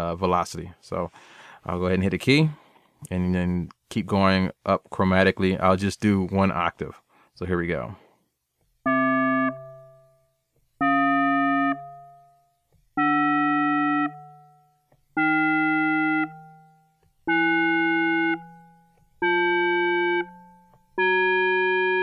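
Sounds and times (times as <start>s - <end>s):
synthesizer single notes: 8.8s - 22.0s.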